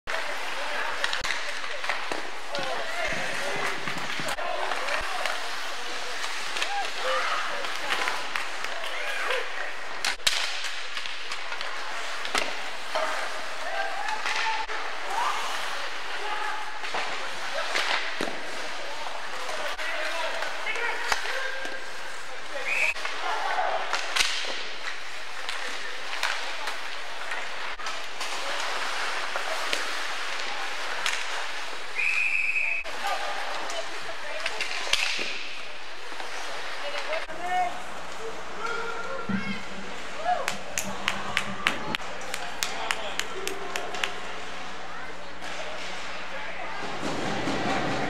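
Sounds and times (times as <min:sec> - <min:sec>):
hockey sticks and puck clacking: 0:00.1 - 0:32.1, 0:32.9 - 0:37.4, 0:38.0 - 0:44.4
steady rink hiss: 0:00.1 - 0:32.3
hockey sticks and puck knocking: 0:23.9 - 0:26.9.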